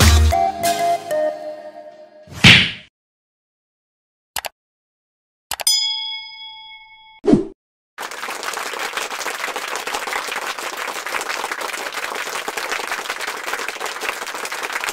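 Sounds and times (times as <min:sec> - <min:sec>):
crowd applause: 0:08.0 - 0:14.9.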